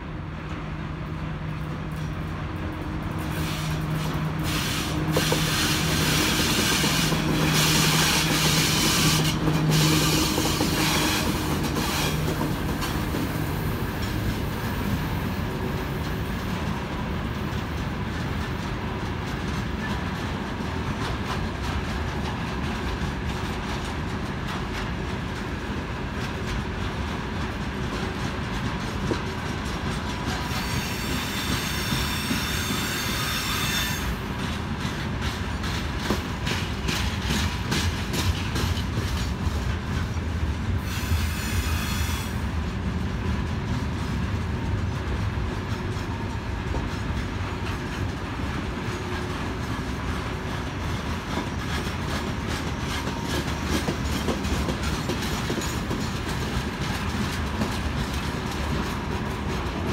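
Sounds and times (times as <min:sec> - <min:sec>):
electric locomotive humming: 0:00.0 - 0:59.9
freight train wheels rolling: 0:00.0 - 0:59.9
high wheel squeal: 0:30.5 - 0:34.2.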